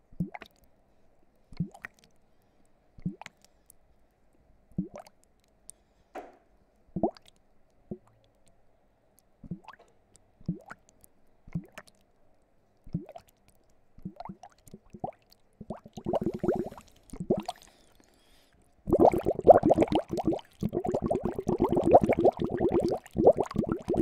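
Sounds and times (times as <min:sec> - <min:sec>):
bubbles blown into water: 0:14.1 - 0:17.6, 0:18.9 - 0:24.0.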